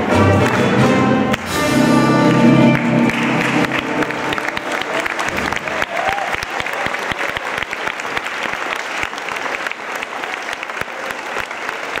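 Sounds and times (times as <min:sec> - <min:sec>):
large crowd applauding: 0:02.2 - 0:12.0.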